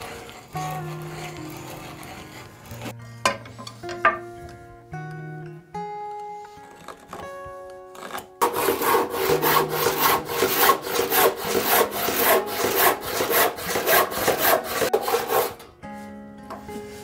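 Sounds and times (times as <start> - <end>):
hand saw cutting wood: 0.0 - 3.0, 8.0 - 15.7.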